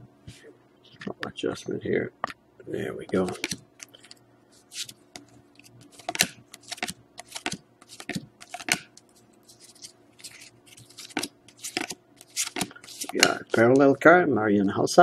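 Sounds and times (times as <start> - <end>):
faint steady hum: 0.0 - 15.0
cards flicking against each other: 3.1 - 13.9.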